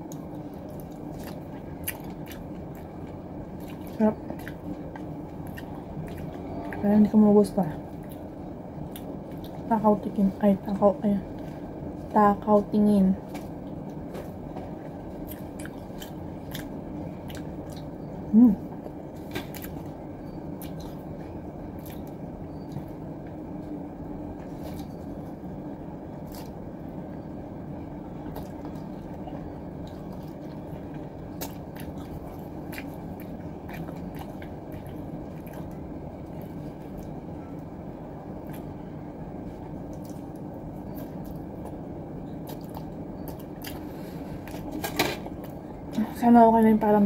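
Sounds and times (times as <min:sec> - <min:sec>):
person chewing food: 0:00.0 - 0:06.9, 0:07.9 - 0:09.7, 0:13.3 - 0:18.1, 0:18.8 - 0:23.0, 0:26.2 - 0:26.6, 0:28.2 - 0:37.7, 0:38.4 - 0:38.8, 0:39.4 - 0:45.6
steady background hum: 0:00.0 - 0:47.0.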